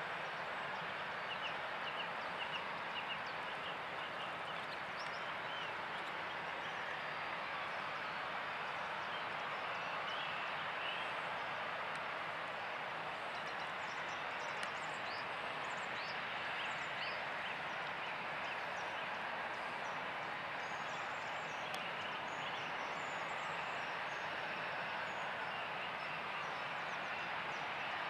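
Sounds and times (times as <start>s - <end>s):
distant jet engines: 0.0s - 28.0s.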